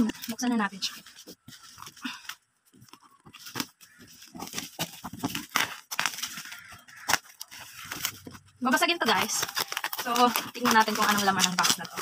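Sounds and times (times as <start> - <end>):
plastic crinkling and rustling: 0.0 - 12.0
scissors cutting plastic bag: 3.6 - 12.0.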